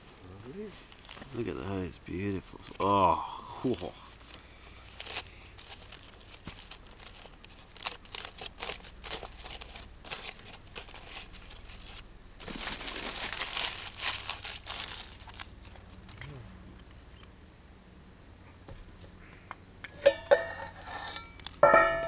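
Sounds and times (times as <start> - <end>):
aluminium foil crinkling: 0.1 - 1.5, 3.6 - 16.3, 20.6 - 21.6.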